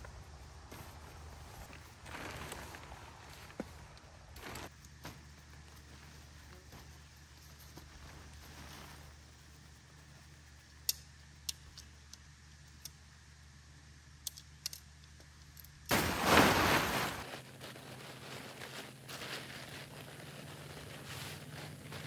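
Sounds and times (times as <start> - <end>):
tent fabric shaken and rustling: 0.8 - 9.8, 15.9 - 22.0.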